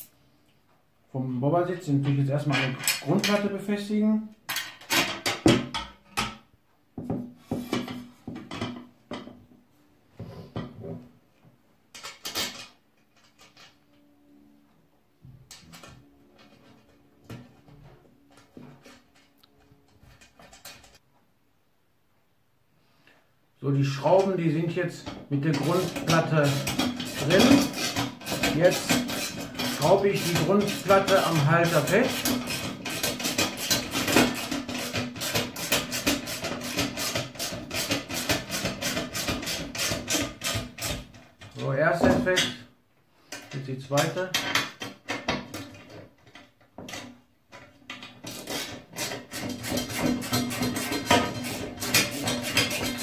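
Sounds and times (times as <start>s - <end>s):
steel bolts and washers clinking: 2.1s - 3.5s, 11.9s - 14.1s
metal parts clattering: 12.0s - 13.8s, 25.5s - 36.2s
screwdriver driving metal screws: 25.5s - 41.1s.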